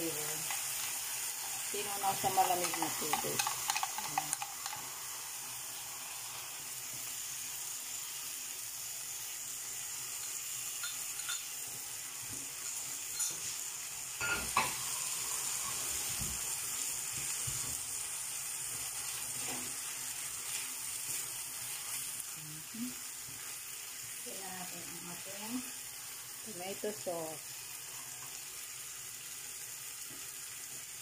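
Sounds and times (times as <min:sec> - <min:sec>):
meat and onions sizzling in a pan: 0:00.0 - 0:31.0
spatula scraping and knocking pan: 0:02.0 - 0:04.9.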